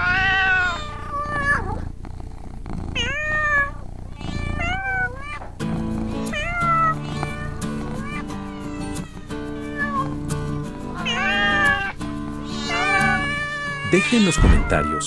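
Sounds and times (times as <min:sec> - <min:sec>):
kittens meowing: 0:00.0 - 0:01.9, 0:03.0 - 0:10.3, 0:10.9 - 0:15.0
background music: 0:05.6 - 0:15.0.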